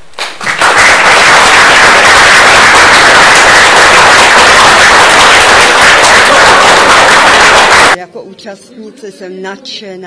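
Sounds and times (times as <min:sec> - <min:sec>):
audience applauding: 0:00.2 - 0:08.0.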